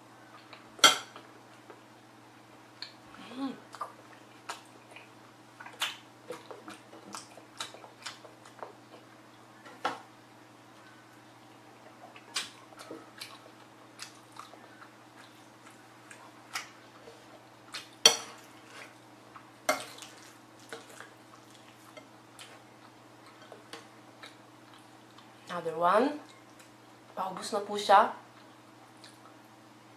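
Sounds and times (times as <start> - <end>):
faint low hum: 0.0 - 29.9
person chewing with wet smacks: 2.7 - 9.5, 10.8 - 25.4, 26.2 - 26.8, 28.3 - 29.5.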